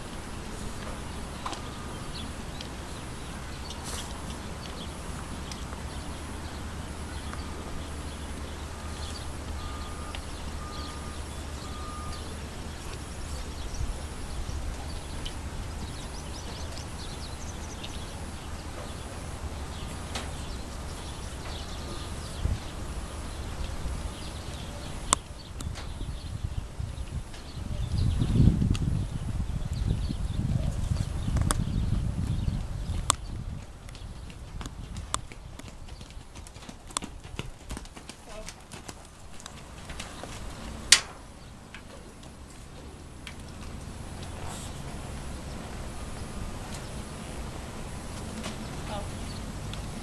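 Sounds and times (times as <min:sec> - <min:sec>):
hoofbeats on sand: 0:30.5 - 0:40.9.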